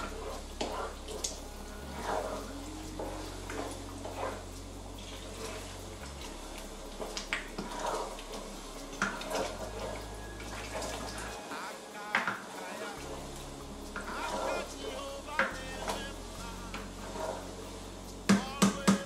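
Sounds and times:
wet stirring of stew: 0.0 - 13.3
steady low hum: 0.0 - 19.0.

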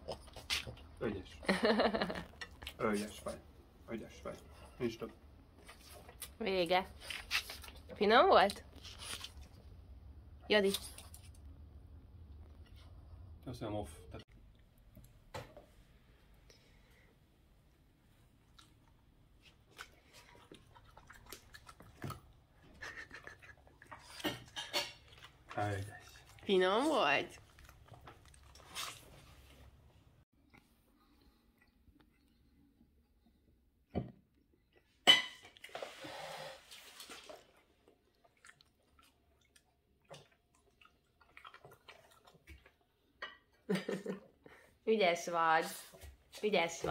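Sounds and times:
dog chewing wet smacks: 18.5 - 26.4, 37.2 - 43.1.

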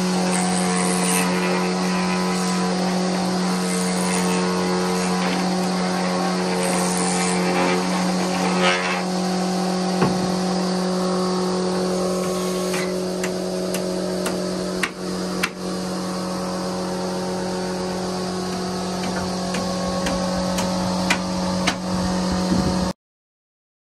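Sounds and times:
electric planer motor humming: 0.0 - 22.9
wood knocking: 10.0 - 10.4, 18.5 - 21.8.

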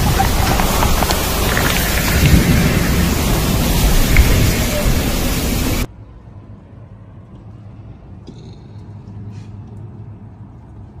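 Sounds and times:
heavy rain hissing: 0.0 - 5.9.

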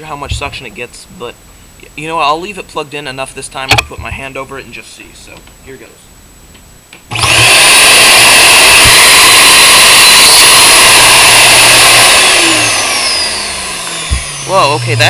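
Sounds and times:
vacuum cleaner motor whining: 7.1 - 15.0.

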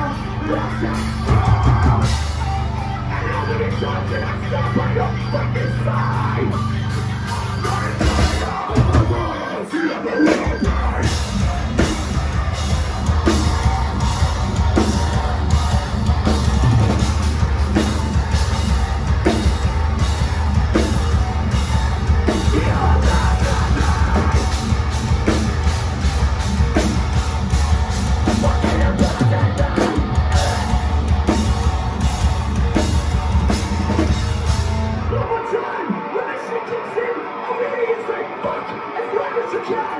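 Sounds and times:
vocals through loudspeakers: 0.0 - 12.0, 22.3 - 24.8, 28.2 - 30.9, 35.1 - 39.9
live metal band playing loud: 0.0 - 39.9
pounding drums: 7.7 - 35.1.

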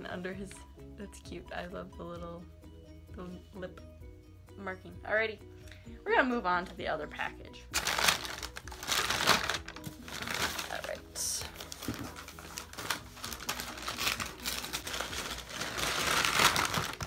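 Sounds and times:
paper mailer crinkling: 7.8 - 17.0.

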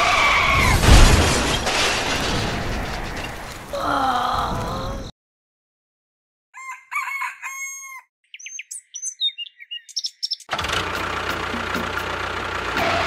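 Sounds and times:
rooster crowing: 6.6 - 8.1
birds chirping and whistling: 6.6 - 10.5.

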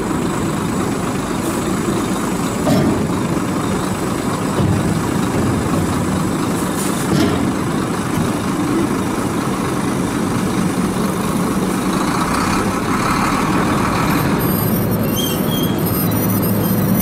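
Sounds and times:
truck diesel engine running: 0.0 - 17.0.

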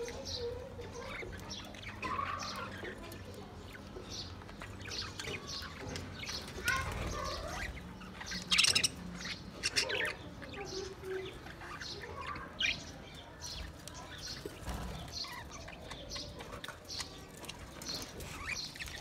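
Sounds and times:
budgerigars chirping: 0.0 - 19.0.

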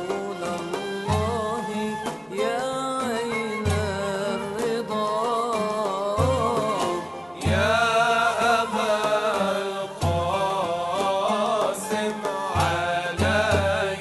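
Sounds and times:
men singing melismatic melody: 0.0 - 14.0
string and percussion accompaniment: 0.0 - 14.0
frame drum beats: 6.2 - 14.0.

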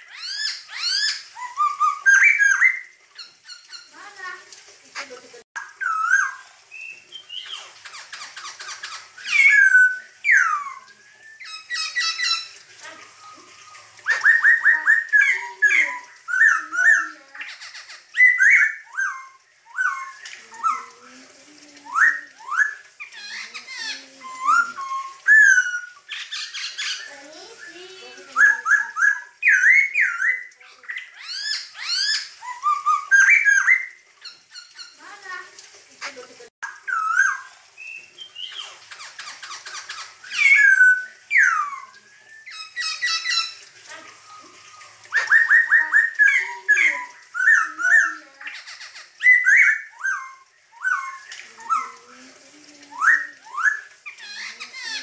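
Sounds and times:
bird singing whistled song: 0.1 - 2.9, 9.2 - 12.5, 13.1 - 17.1, 18.2 - 20.9, 24.2 - 33.9, 39.9 - 43.6, 44.2 - 48.2, 49.2 - 52.0
bird singing whistles: 9.2 - 12.5, 24.2 - 26.0, 40.3 - 43.6.

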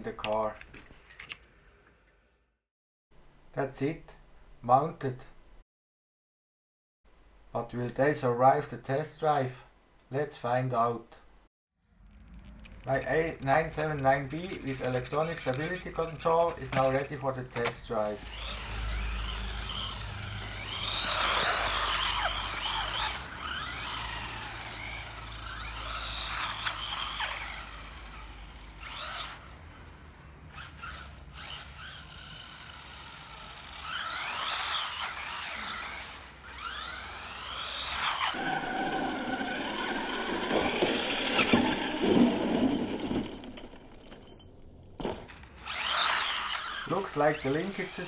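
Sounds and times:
toy truck crashing and clattering: 12.1 - 29.6, 30.6 - 38.4, 39.2 - 48.0
electric motor whining: 12.4 - 42.2, 45.3 - 48.0.

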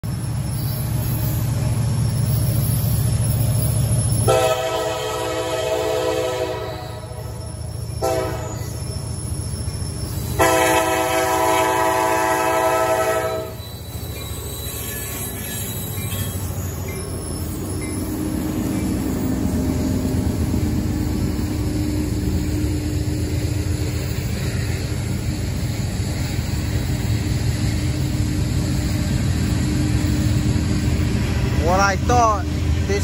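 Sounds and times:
locomotive engine rumble: 0.0 - 33.0
locomotive air horn blasts: 4.3 - 7.2, 8.0 - 8.6, 10.4 - 13.6.

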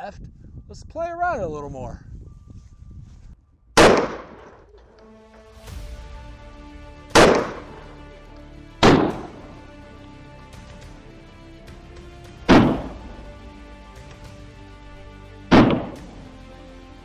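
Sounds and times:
pistol shots: 3.8 - 4.6, 7.2 - 8.0, 8.8 - 9.4, 12.5 - 13.0, 15.5 - 16.3
background music: 3.8 - 17.0.

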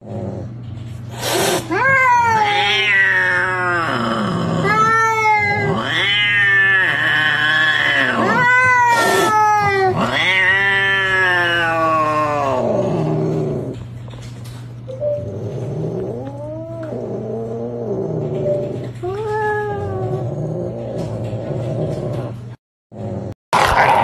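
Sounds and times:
cat hissing: 1.1 - 12.8
cats yowling: 1.4 - 13.8, 15.2 - 21.4.

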